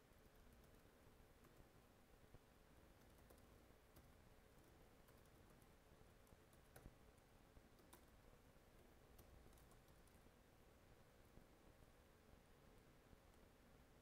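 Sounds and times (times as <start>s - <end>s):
computer keyboard typing: 3.0s - 7.0s, 7.7s - 8.2s, 9.2s - 10.2s.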